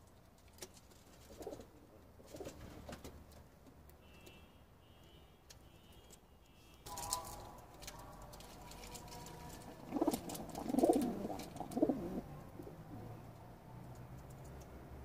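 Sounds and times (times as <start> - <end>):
pigeon cooing: 8.6 - 13.3.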